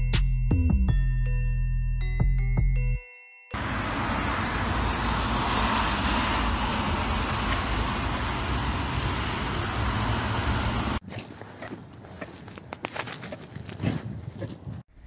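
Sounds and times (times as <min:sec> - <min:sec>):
street traffic noise: 0:03.6 - 0:13.9.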